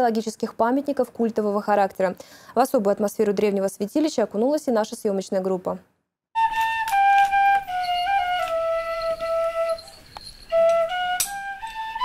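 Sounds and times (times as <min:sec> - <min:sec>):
wind instrument melody: 0:06.4 - 0:12.0.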